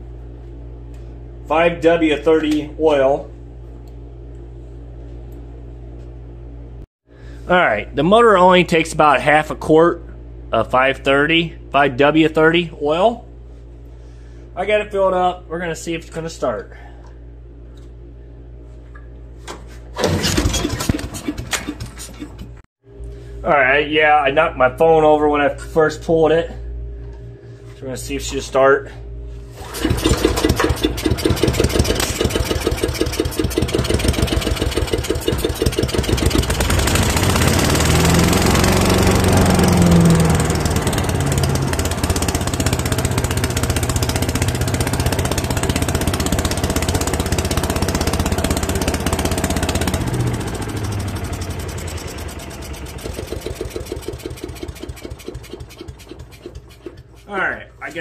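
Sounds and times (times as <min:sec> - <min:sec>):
recoil cord pull-start: 0:20.0 - 0:22.6, 0:29.6 - 0:57.3
small engine running: 0:20.0 - 0:22.6, 0:29.5 - 0:57.4.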